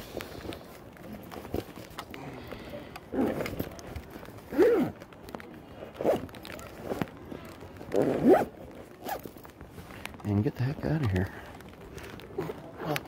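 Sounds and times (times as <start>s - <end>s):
handling knocks and rustles: 0.0s - 13.0s
zipper pulls: 3.0s - 3.8s, 4.4s - 5.0s, 5.8s - 9.5s.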